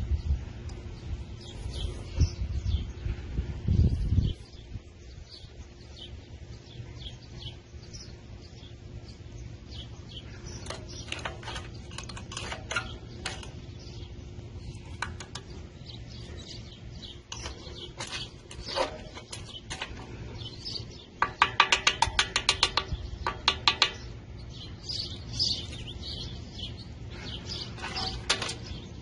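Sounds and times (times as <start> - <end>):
low steady hum: 0.0 - 29.0
birds chirping: 0.1 - 29.0.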